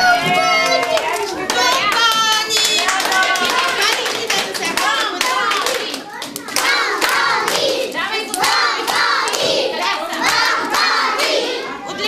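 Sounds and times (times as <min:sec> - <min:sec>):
hands clapping: 0:00.1 - 0:09.6
young children singing: 0:05.2 - 0:12.0.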